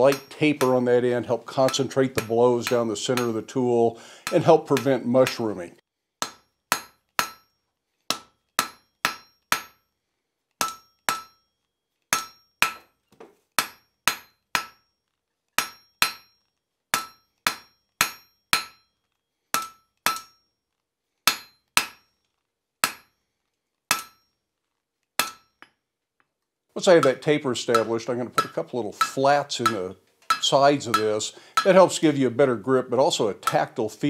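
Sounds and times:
hammer striking steel on anvil: 0.0 - 5.6, 6.2 - 9.9, 10.6 - 11.5, 12.1 - 13.0, 13.6 - 14.9, 15.6 - 20.5, 21.3 - 22.2, 22.8 - 23.2, 23.9 - 24.3, 25.2 - 25.8, 26.8 - 32.1, 33.2 - 33.8.

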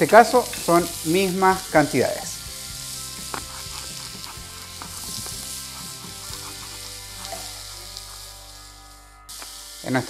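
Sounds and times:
onion and garlic sizzling in a pan: 0.0 - 10.0
wooden spoon scraping a pan: 3.2 - 8.4.

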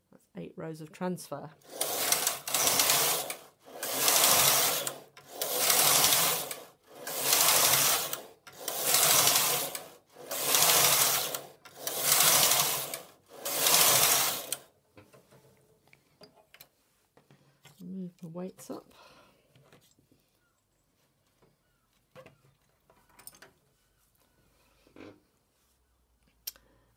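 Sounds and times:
knitting machine carriage rasping: 1.6 - 14.7.

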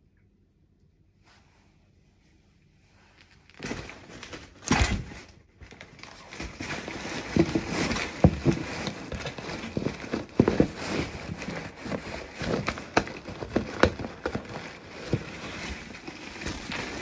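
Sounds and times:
cardboard box being handled: 5.6 - 17.0.

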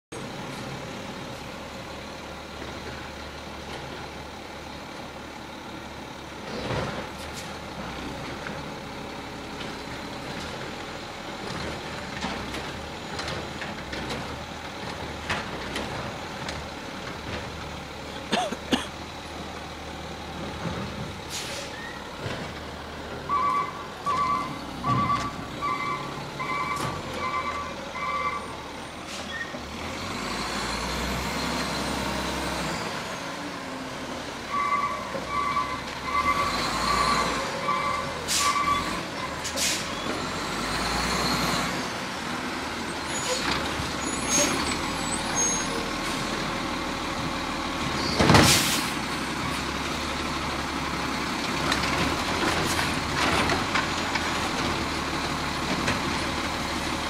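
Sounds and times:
garbage truck diesel engine: 0.1 - 57.0
air brake hiss: 21.3 - 21.9, 39.4 - 40.0, 48.4 - 49.0
reversing alarm beeping: 23.3 - 28.4.

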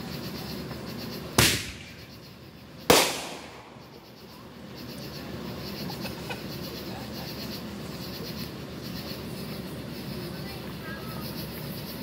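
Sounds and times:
fireworks banging: 1.3 - 2.2, 2.8 - 4.2.

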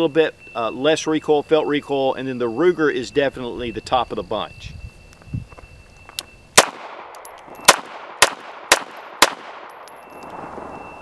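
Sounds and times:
sharp pistol click: 6.1 - 10.5
pistol shots with ringing echo: 6.5 - 11.0.

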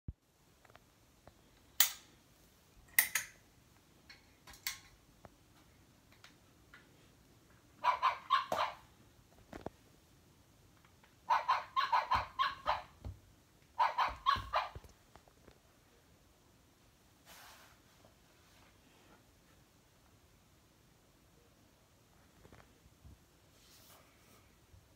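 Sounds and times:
toy dog barking through speaker: 7.8 - 8.9, 11.2 - 13.0, 13.8 - 14.8.

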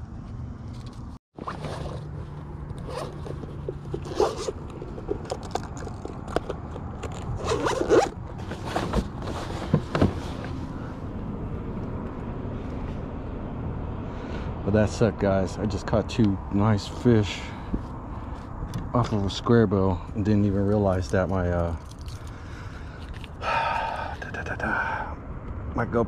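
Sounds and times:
zipper rasping pulls: 1.4 - 9.4.

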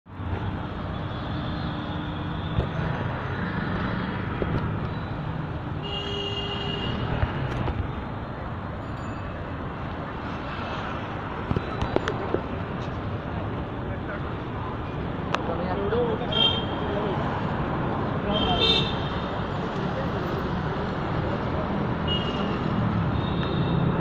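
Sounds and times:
passing vehicle engines: 0.1 - 5.8.

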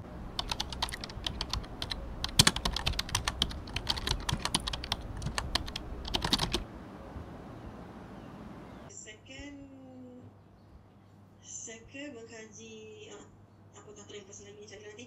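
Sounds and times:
keyboard typing: 0.4 - 6.6.

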